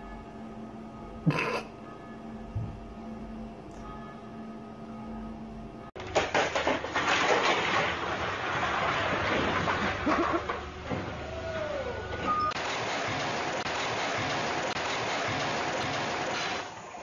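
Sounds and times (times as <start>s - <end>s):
low steady hum: 0.0s - 7.2s
plastic bottles clattering down: 6.0s - 11.2s.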